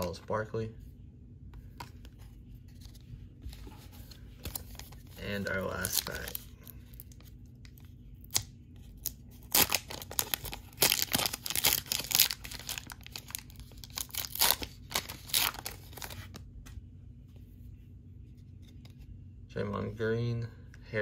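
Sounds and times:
foil wrapper tearing and crinkling: 0:04.6 - 0:16.4.

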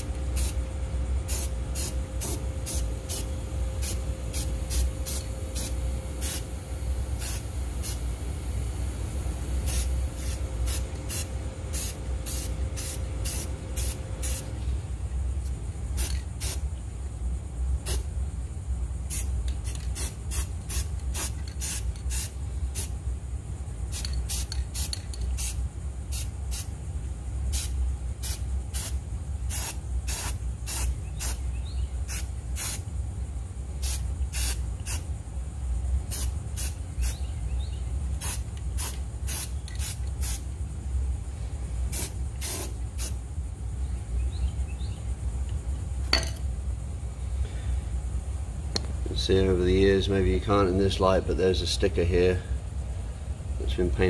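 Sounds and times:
spray paint can hissing: 0:00.3 - 0:00.6, 0:01.2 - 0:06.5, 0:07.2 - 0:08.0, 0:09.6 - 0:14.6, 0:15.9 - 0:16.6, 0:17.8 - 0:18.1, 0:19.1 - 0:23.0, 0:23.9 - 0:26.7, 0:27.5 - 0:31.4, 0:32.0 - 0:32.8, 0:33.8 - 0:35.1, 0:36.1 - 0:37.3, 0:38.2 - 0:40.4, 0:41.9 - 0:43.2.

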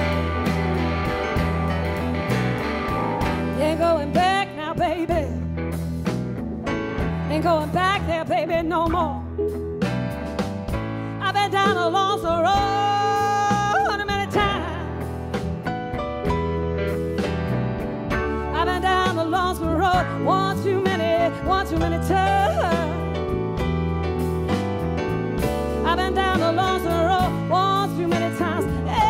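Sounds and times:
electric guitar bending notes: 0:00.0 - 0:07.3
live blues band playing: 0:00.0 - 0:29.0.

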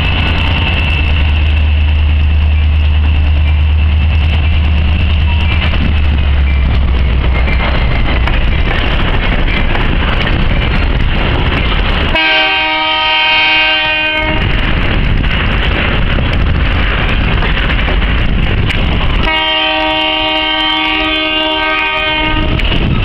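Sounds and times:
train wheels on rails: 0:00.0 - 0:23.0
locomotive air horn blasts: 0:12.1 - 0:14.4, 0:19.2 - 0:22.7.

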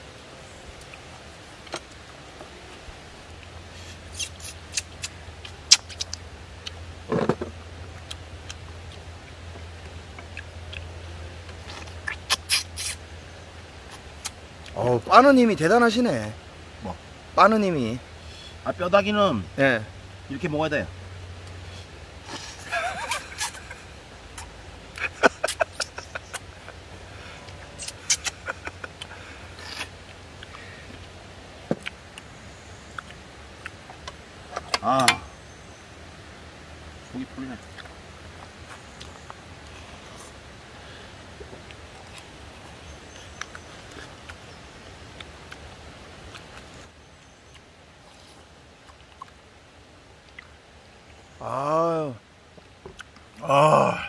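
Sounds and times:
steady low hum: 0:00.0 - 0:54.0
wet chewing and sucking: 0:00.7 - 0:13.1, 0:21.4 - 0:34.2, 0:37.6 - 0:40.6, 0:41.3 - 0:44.5, 0:45.1 - 0:46.9, 0:47.5 - 0:49.5, 0:50.2 - 0:50.6, 0:52.9 - 0:53.5
wet eating smacks and sucking: 0:03.8 - 0:06.8, 0:08.0 - 0:13.0, 0:24.3 - 0:26.5, 0:27.5 - 0:31.1.

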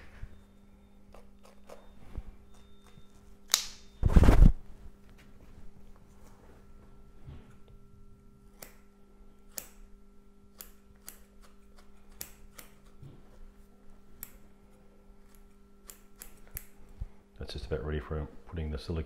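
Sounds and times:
steady low hum: 0:00.0 - 0:19.0
scissors snipping foam: 0:10.5 - 0:13.0, 0:15.2 - 0:16.8.

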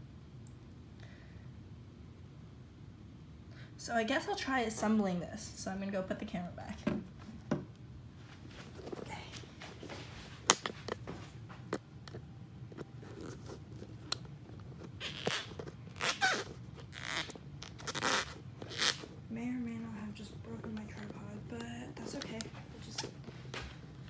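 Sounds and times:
handling clicks and knocks: 0:10.4 - 0:15.8
crinkly rustles: 0:12.7 - 0:19.2.

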